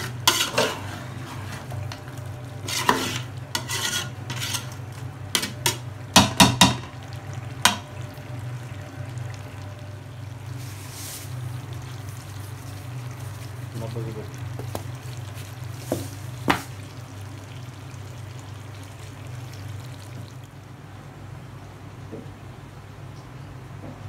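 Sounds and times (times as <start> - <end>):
spatula scraping a pot: 0.0 - 5.9
sharp knocks on pot: 6.2 - 6.9.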